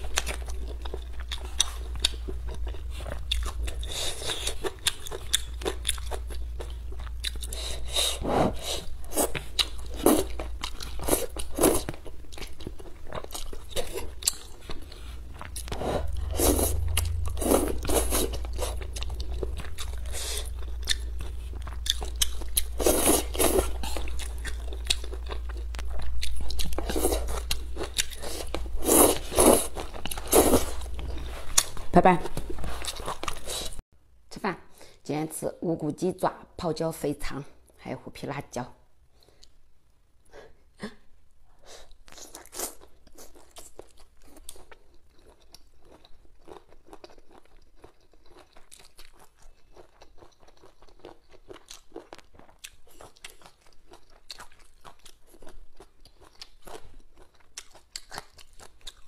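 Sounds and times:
wet chewing and crunching: 0.0s - 8.0s, 8.8s - 33.8s, 41.9s - 59.0s
slurping noodles: 15.7s - 16.8s, 22.8s - 24.0s.

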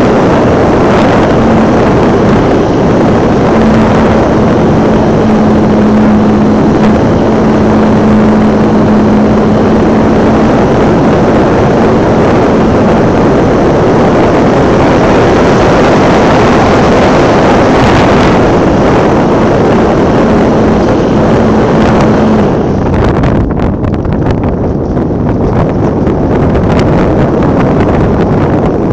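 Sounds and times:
model plane motor humming: 0.0s - 22.9s
wind rush on microphone: 0.0s - 28.9s.

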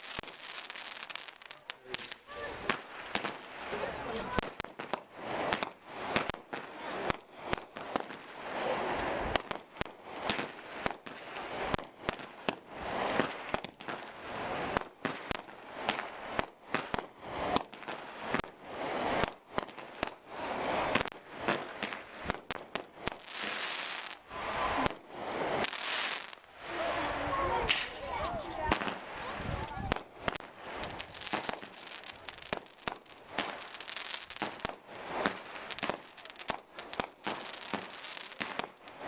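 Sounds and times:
firework crackling: 0.0s - 39.0s
firework shells bursting: 27.6s - 39.0s.

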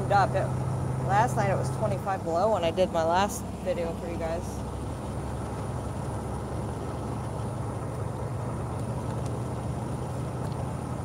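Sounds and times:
truck diesel engine droning: 0.0s - 11.0s
tyres on road: 0.0s - 11.0s.

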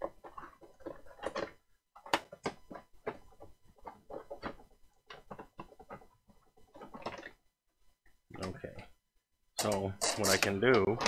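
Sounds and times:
plastic parts clicking and scraping: 0.0s - 7.4s, 9.6s - 11.0s.

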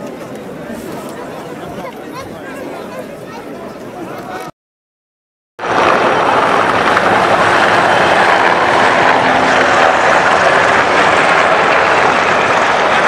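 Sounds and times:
helicopters passing overhead: 5.6s - 13.0s.

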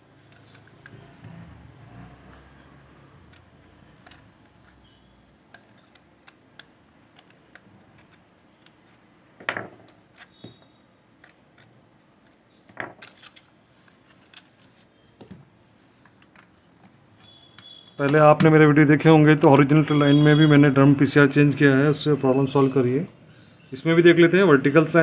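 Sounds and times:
plastic cartridge clicks and rattles: 5.5s - 9.0s.

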